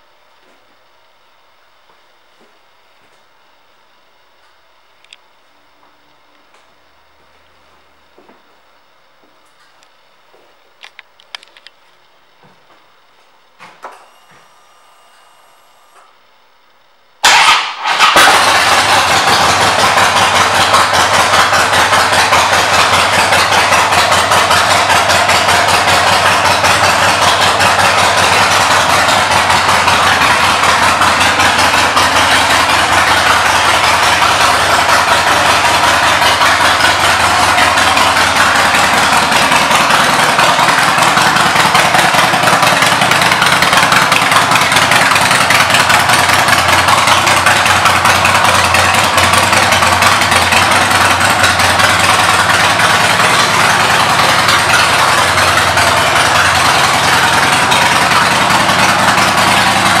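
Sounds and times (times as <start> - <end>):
motorcycle engine idling: 17.2 - 60.0.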